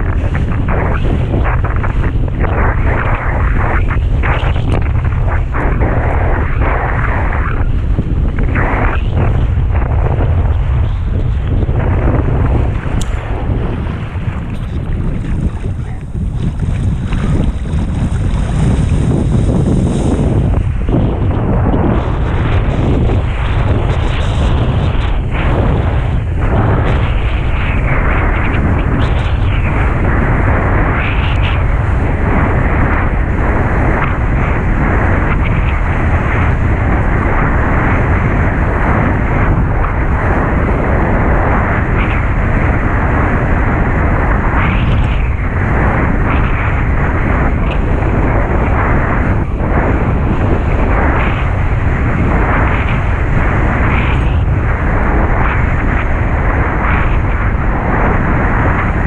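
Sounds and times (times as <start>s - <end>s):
strong wind buffeting microphone: 0.0s - 59.0s.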